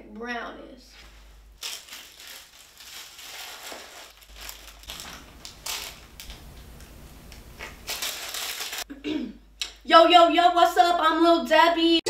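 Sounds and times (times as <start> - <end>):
plastic wrapper crinkling: 1.6 - 8.9.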